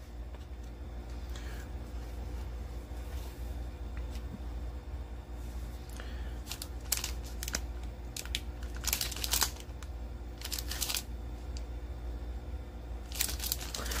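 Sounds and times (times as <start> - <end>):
plastic wrapper crinkling: 6.4 - 11.1, 13.1 - 14.0.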